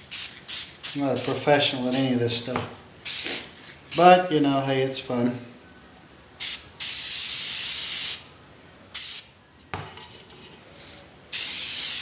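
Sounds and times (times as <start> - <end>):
spray paint can hissing: 0.0 - 2.2, 3.0 - 4.1, 6.4 - 8.3, 8.9 - 9.3, 11.3 - 12.0.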